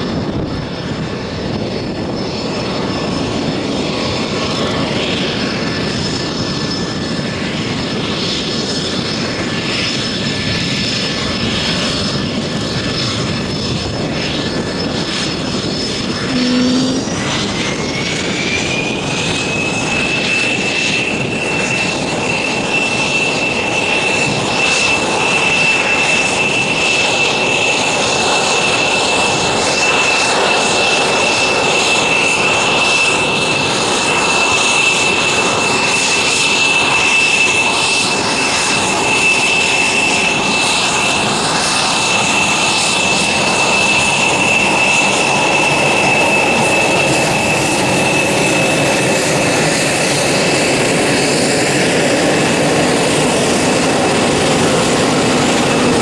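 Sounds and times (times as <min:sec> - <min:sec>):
aircraft engine running with whine: 0:00.0 - 0:56.0.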